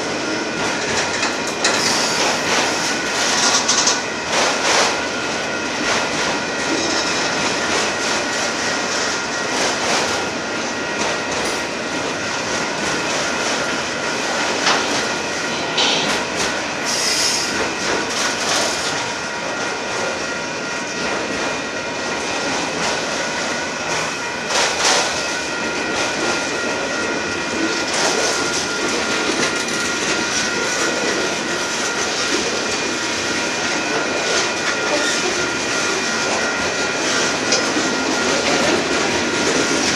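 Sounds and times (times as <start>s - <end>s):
freight train wheels rumbling on rail: 0.0s - 39.9s
high wheel squeal: 1.7s - 3.0s, 16.8s - 17.6s.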